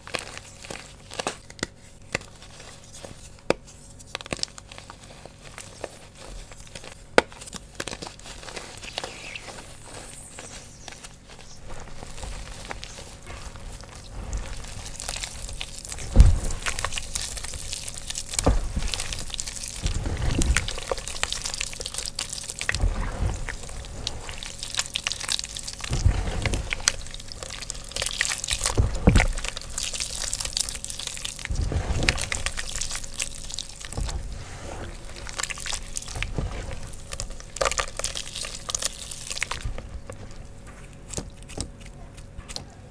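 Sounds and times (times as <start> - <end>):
wet paste squishing in hands: 4.1 - 34.3.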